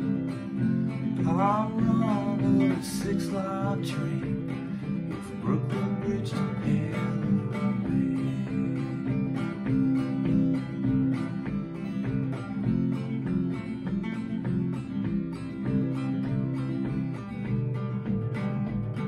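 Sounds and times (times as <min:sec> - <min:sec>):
acoustic guitar strumming: 0:00.0 - 0:19.0
man singing: 0:01.1 - 0:10.0.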